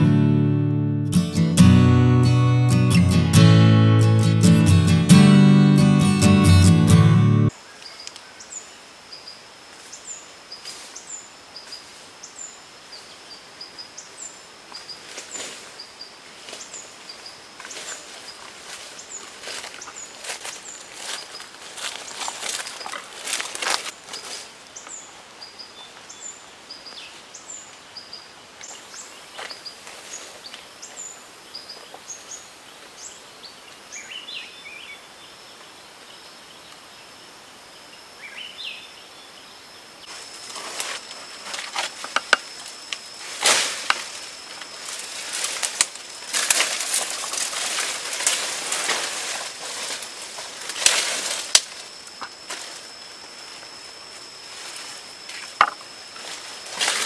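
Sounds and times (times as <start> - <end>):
branches rustling and cracking: 14.7 - 15.8, 17.6 - 25.0, 40.0 - 57.0
steady high whine: 35.9 - 57.0.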